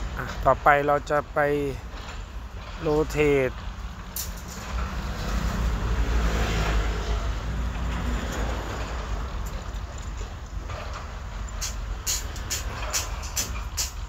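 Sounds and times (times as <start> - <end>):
motor vehicle passing: 4.5 - 13.4.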